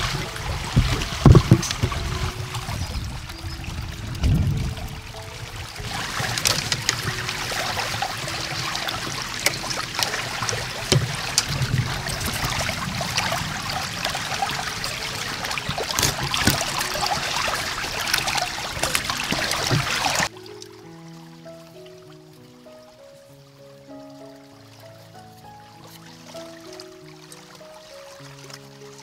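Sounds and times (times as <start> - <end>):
low knocks: 0.0 - 20.3
water splashing and trickling: 0.0 - 29.0.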